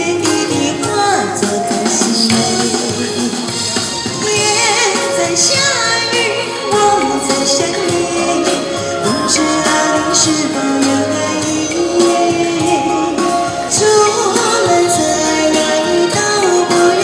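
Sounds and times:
recorded backing track: 0:00.0 - 0:17.0
woman singing pop ballad: 0:00.0 - 0:17.0.

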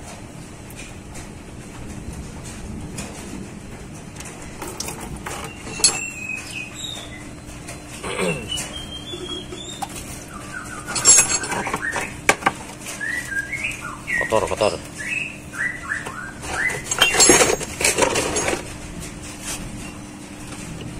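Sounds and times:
short squeaks: 0:05.3 - 0:12.2, 0:15.9 - 0:17.7
metal clicks and scrapes: 0:10.8 - 0:12.9, 0:16.4 - 0:20.8.

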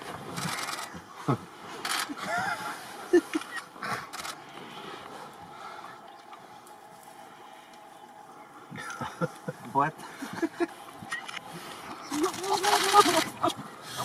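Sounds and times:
rustling: 0:10.1 - 0:14.0.

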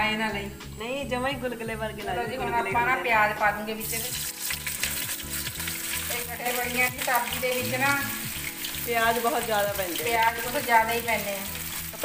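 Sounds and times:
onions sizzling in hot oil: 0:03.8 - 0:12.0.

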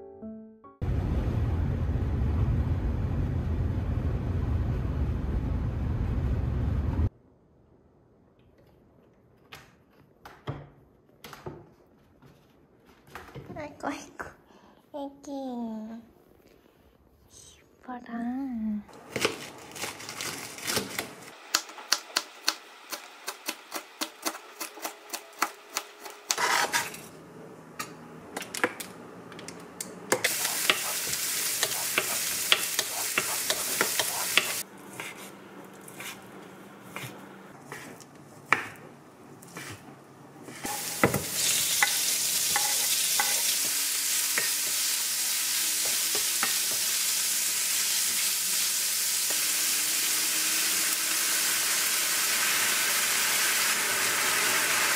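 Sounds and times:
vegetables sizzling in a frying pan: 0:30.2 - 0:34.6, 0:40.6 - 0:54.9
meat frying: 0:30.2 - 0:34.7, 0:40.6 - 0:54.9
knife chopping on cutting board: 0:31.6 - 0:35.3, 0:36.9 - 0:38.9.

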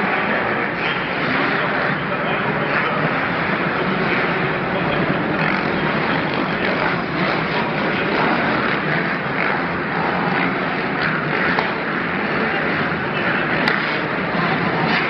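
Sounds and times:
motorcycle engines racing: 0:00.0 - 0:15.0.

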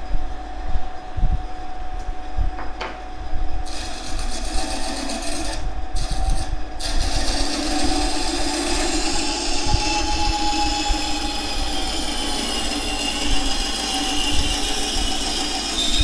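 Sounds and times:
band saw humming: 0:03.6 - 0:16.0
saw blade rasping through plywood: 0:03.6 - 0:16.0.

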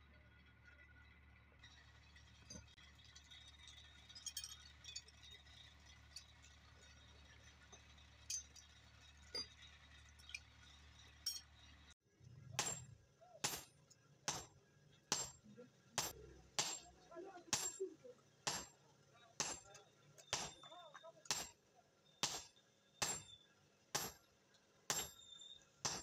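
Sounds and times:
hammer clinking on anvil: 0:12.6 - 0:14.5, 0:15.1 - 0:15.4, 0:16.0 - 0:17.9, 0:18.5 - 0:18.8, 0:19.4 - 0:21.6, 0:22.2 - 0:23.4, 0:24.0 - 0:24.2, 0:24.9 - 0:25.2.

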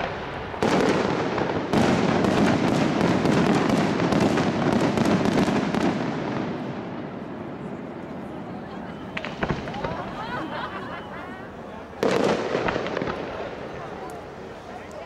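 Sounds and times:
firework crackling: 0:00.0 - 0:15.0.

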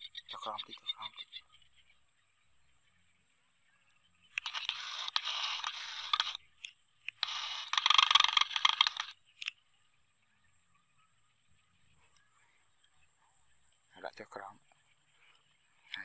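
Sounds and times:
crackling scraping noise: 0:04.3 - 0:09.5.

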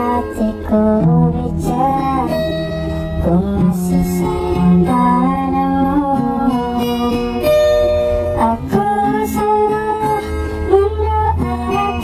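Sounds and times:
guitar accompaniment: 0:00.0 - 0:12.0.

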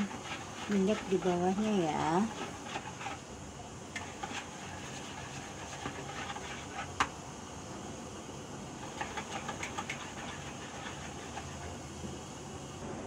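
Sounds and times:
utensil stirring batter in bowl: 0:00.0 - 0:07.2, 0:08.8 - 0:11.8
steady background hum: 0:00.0 - 0:13.0.

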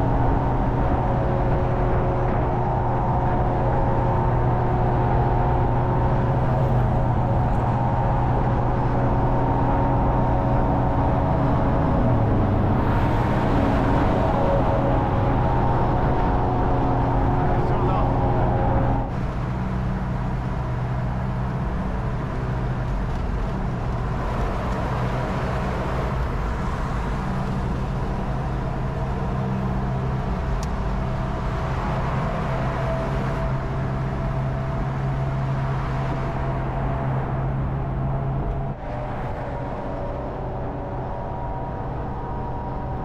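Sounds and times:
car engine drone: 0:00.0 - 0:43.0
road noise: 0:00.0 - 0:43.0
wind noise: 0:00.0 - 0:43.0.

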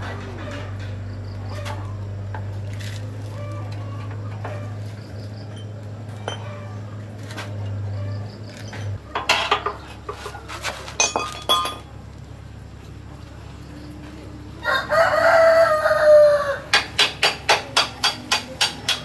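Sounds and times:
steady low hum: 0:00.0 - 0:18.8
metal tools clinking: 0:08.6 - 0:11.9.

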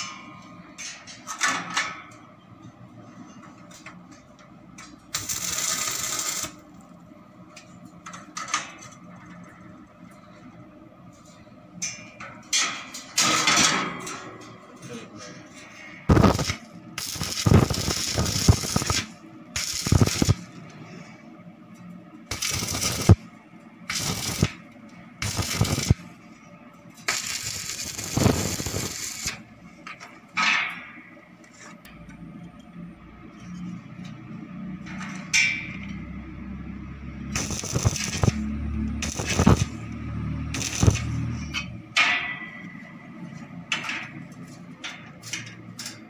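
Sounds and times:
electric arc welding bursts: 0:05.1 - 0:06.6, 0:16.1 - 0:20.5, 0:22.3 - 0:23.2, 0:23.9 - 0:24.6, 0:25.2 - 0:26.1, 0:27.1 - 0:29.4, 0:37.3 - 0:39.8, 0:40.4 - 0:41.3.

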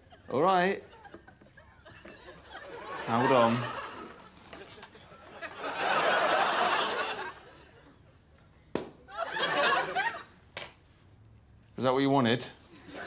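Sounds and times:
audience laughing: 0:00.1 - 0:08.0, 0:09.1 - 0:10.4.

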